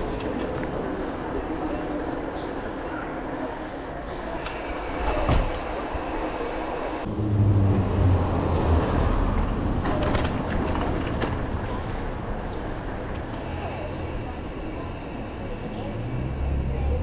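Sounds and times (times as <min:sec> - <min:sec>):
wind: 0:00.0 - 0:17.0
vehicle engine hum: 0:04.4 - 0:11.4, 0:12.0 - 0:17.0.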